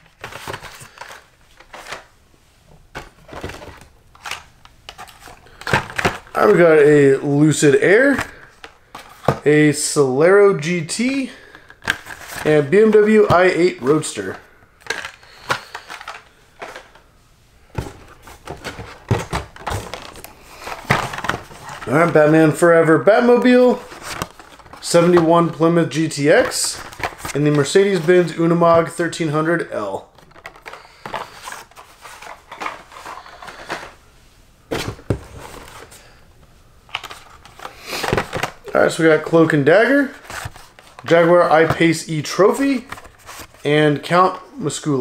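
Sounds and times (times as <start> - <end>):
plastic and card packaging clacks: 0.0 - 2.1, 2.9 - 6.6, 11.1 - 17.0, 17.7 - 22.6, 23.2 - 29.3, 30.0 - 34.0, 36.9 - 43.7
plastic blisters crinkling: 11.0 - 17.0, 17.8 - 34.0.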